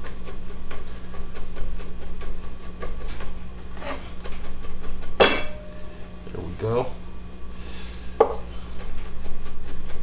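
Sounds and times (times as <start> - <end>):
knife chopping on wooden board: 8.2 - 8.5.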